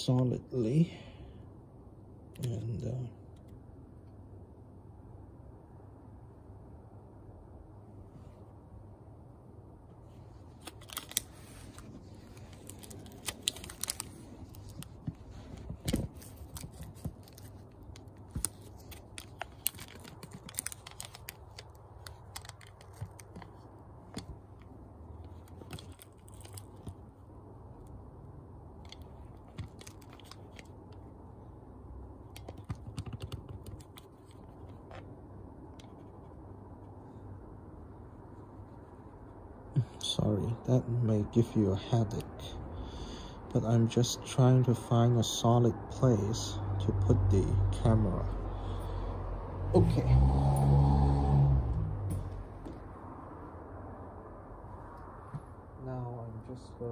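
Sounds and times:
rustling: 10.0 - 27.2.

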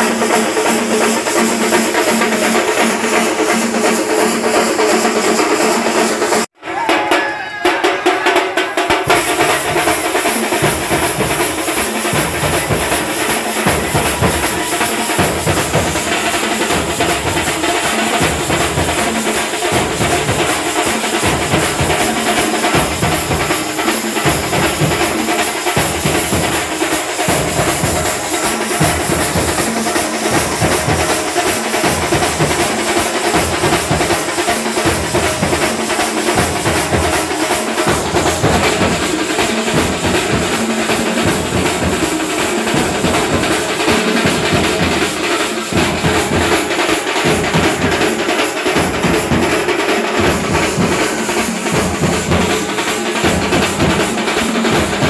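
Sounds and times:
large drums beating together: 0.0 - 55.0.

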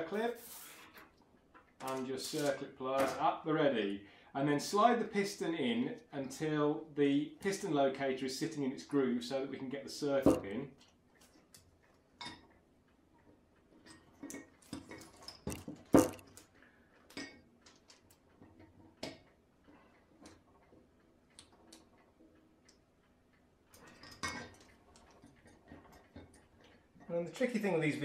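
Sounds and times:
small metal clicks and clinks: 23.7 - 26.8.

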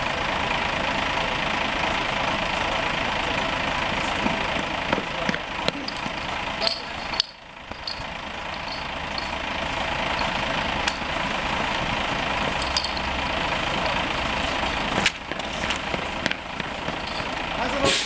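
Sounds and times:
engine running steadily: 0.0 - 18.0
sharp metallic clicks and knocks: 4.9 - 9.4.

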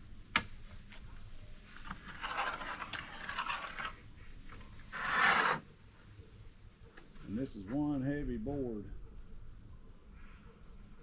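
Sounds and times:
straightedge scraping on plywood: 4.9 - 5.6.

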